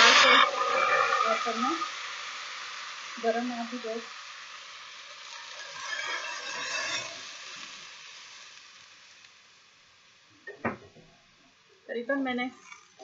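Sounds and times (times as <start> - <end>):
milk sizzling in hot pan: 0.0 - 10.5, 11.2 - 13.0.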